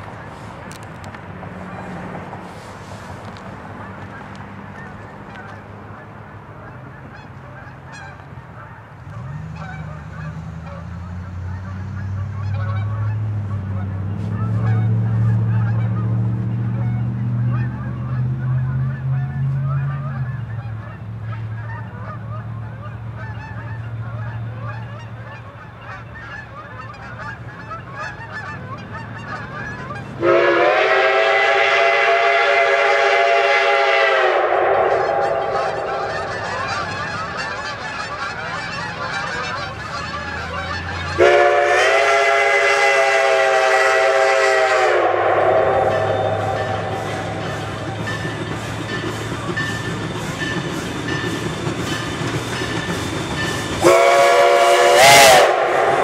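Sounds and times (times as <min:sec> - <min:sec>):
steam locomotive rumbling: 0:00.0 - 0:56.0
steam whistle chord: 0:30.2 - 0:36.8, 0:41.2 - 0:48.4, 0:53.8 - 0:56.0.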